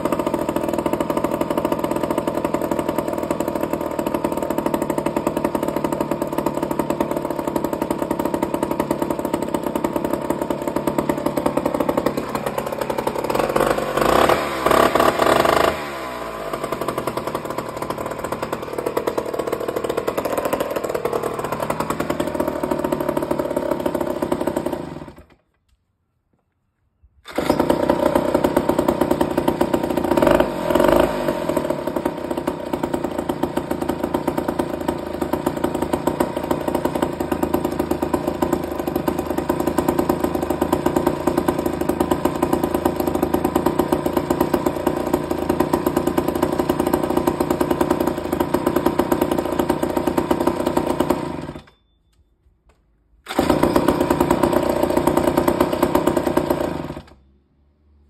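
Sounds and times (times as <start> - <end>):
chainsaw engine running: 0.0 - 25.4, 27.3 - 51.7, 53.2 - 57.2.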